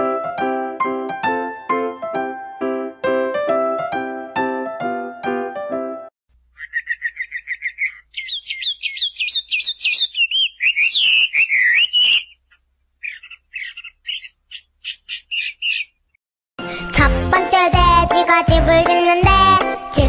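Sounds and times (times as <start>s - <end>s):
songbird chirping: 6.3s - 16.2s.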